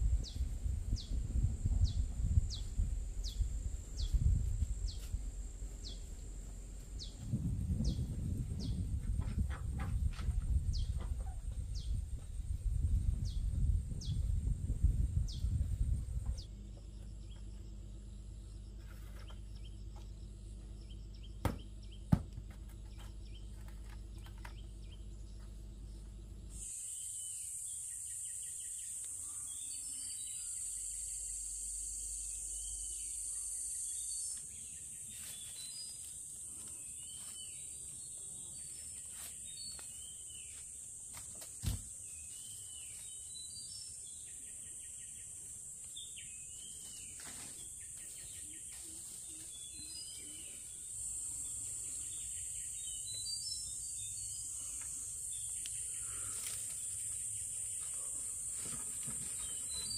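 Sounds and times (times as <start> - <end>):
high-pitched insect chorus: 25.9 - 59.9.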